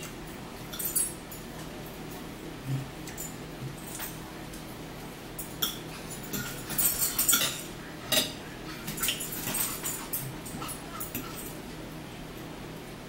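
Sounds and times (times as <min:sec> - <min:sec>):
cutlery scraping and clicking on plates: 0:05.4 - 0:11.6.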